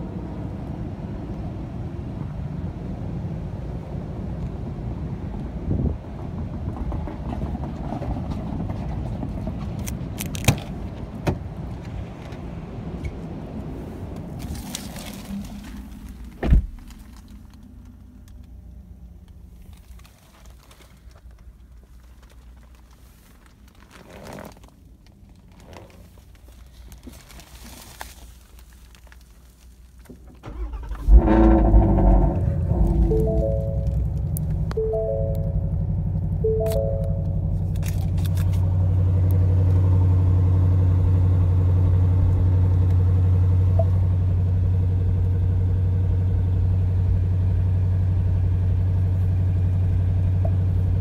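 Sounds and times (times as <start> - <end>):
car engine rumbling: 0.0 - 51.0
car door shutting with a thump: 16.4 - 16.9
electronic tones: 32.4 - 37.7.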